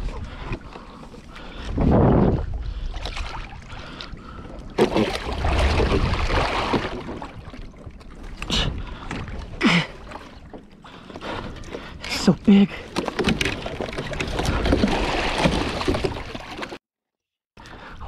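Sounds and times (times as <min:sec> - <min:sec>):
water splashing against kayak hull: 0:00.0 - 0:16.8.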